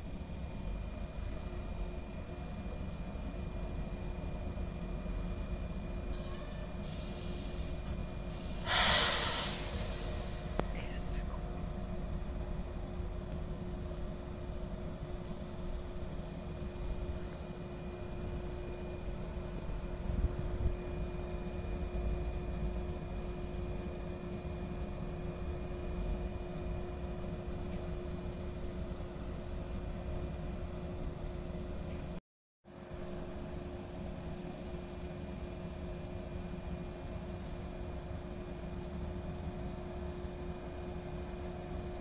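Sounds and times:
electric train equipment hum: 0:00.0 - 0:32.1.

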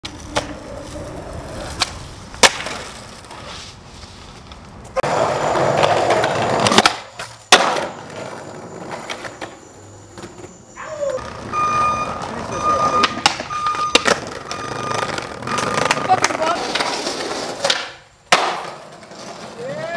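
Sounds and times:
skateboard clacks popping and landing: 0:00.0 - 0:00.6, 0:01.6 - 0:03.4, 0:05.0 - 0:09.6, 0:13.0 - 0:19.6
skateboard wheels rolling on concrete: 0:00.0 - 0:19.9.

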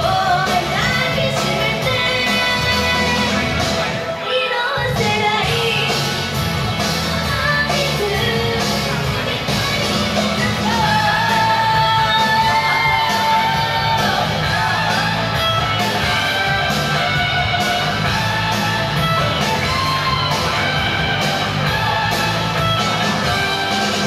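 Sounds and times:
woman singing into microphone: 0:00.0 - 0:03.4, 0:04.2 - 0:06.0, 0:07.2 - 0:14.2
rock band with electric guitar: 0:00.0 - 0:24.0.

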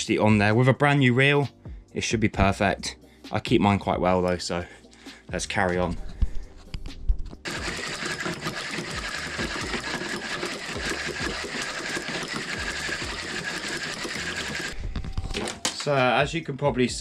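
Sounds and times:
fishing reel whirring: 0:07.4 - 0:14.8.

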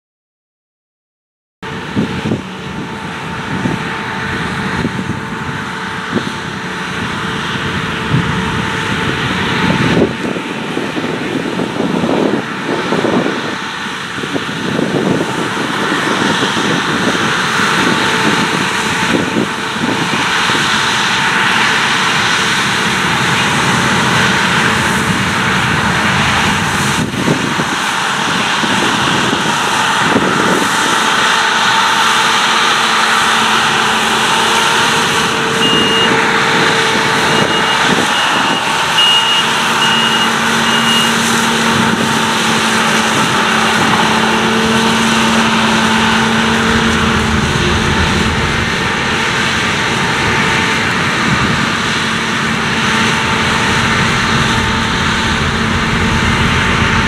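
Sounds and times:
combine harvester roaring: 0:01.6 - 0:57.0
short high beeps: 0:35.6 - 0:36.2, 0:37.4 - 0:41.2.

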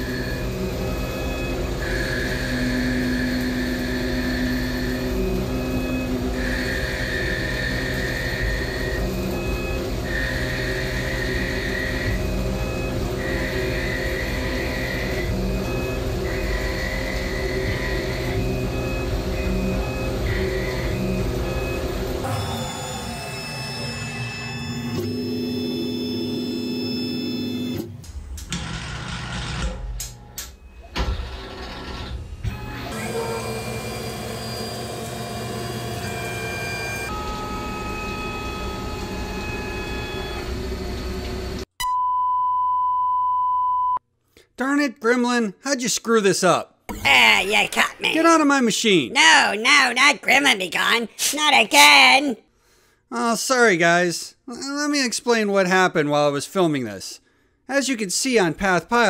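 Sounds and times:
lathe machine hum: 0:00.0 - 0:25.0, 0:32.5 - 0:41.6
high machine whine: 0:00.0 - 0:41.7.

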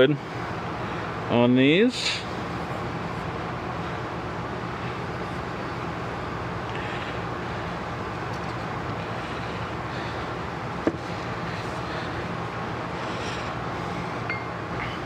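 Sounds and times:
air compressor humming: 0:00.0 - 0:15.0.

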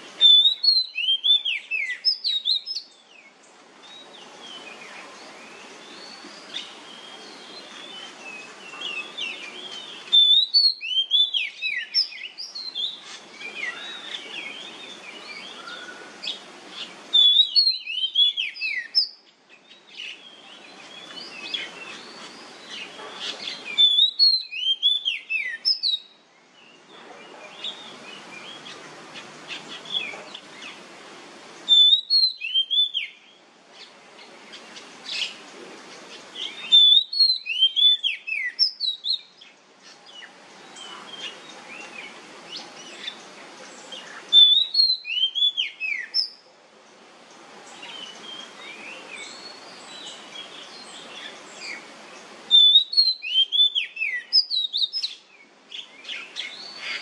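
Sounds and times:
steady hiss: 0:00.0 - 0:57.0
bird singing whistled phrases: 0:00.2 - 0:02.9, 0:06.0 - 0:16.1, 0:17.1 - 0:19.2, 0:23.6 - 0:26.2, 0:31.7 - 0:33.4, 0:36.4 - 0:39.3, 0:44.3 - 0:46.4, 0:52.5 - 0:55.2.

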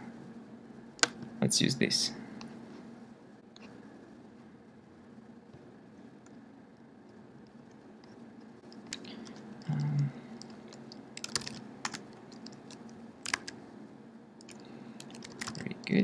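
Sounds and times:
keyboard keystrokes: 0:08.7 - 0:13.6, 0:14.4 - 0:15.7.

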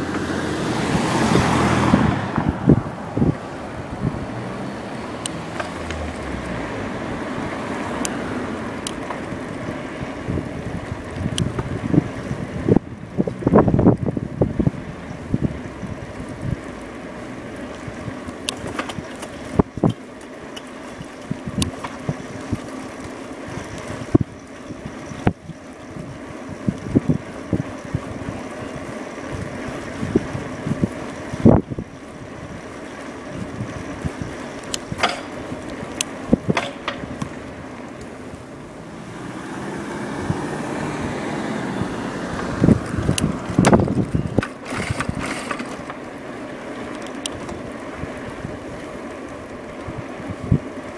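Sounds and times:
electric bike ride noise: 0:00.0 - 0:50.9
sharp clicks and knocks: 0:34.6 - 0:35.4, 0:36.0 - 0:37.4.

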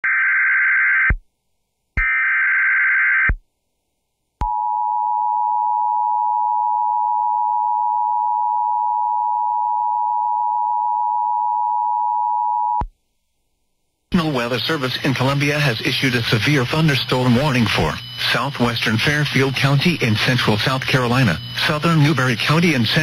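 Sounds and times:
harsh digital data bursts: 0:14.9 - 0:23.0.

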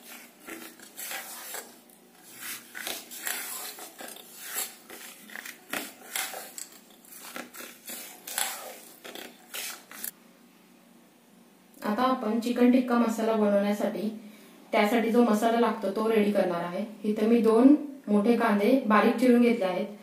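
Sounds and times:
spoon scraping metal bowl: 0:00.0 - 0:10.1.

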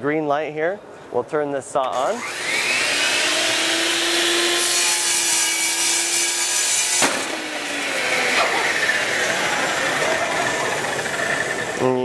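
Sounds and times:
table saw cutting wood: 0:01.9 - 0:11.9
saw motor winding down: 0:01.9 - 0:12.0
sharp bang: 0:07.0 - 0:07.4.

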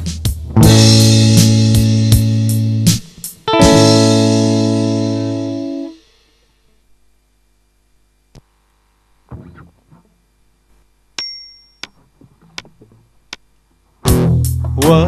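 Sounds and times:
metallic ding: 0:11.2 - 0:12.0.

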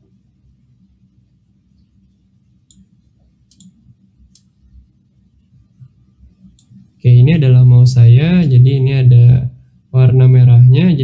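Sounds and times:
computer mouse clicks: 0:02.7 - 0:02.9, 0:03.5 - 0:04.6, 0:05.8 - 0:06.8.

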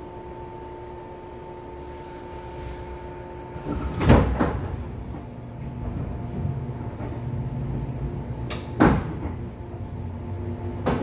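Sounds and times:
train motor hum: 0:00.0 - 0:11.0
loud clunks: 0:08.5 - 0:09.5.

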